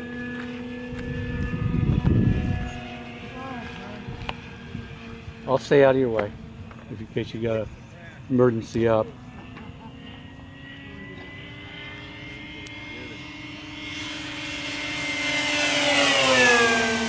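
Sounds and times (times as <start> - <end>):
model airplane motor passing: 0.0 - 17.0.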